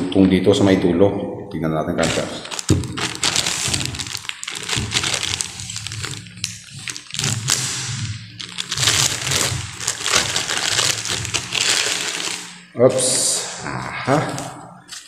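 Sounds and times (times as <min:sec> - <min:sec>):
plastic wrapping crinkling: 0:02.0 - 0:12.7.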